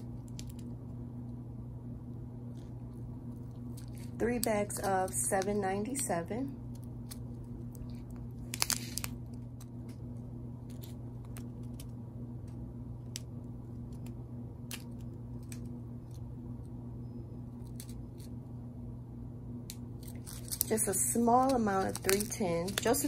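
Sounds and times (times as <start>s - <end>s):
low steady hum: 0.0s - 23.0s
plastic bags crinkling: 7.8s - 9.6s, 20.0s - 23.0s.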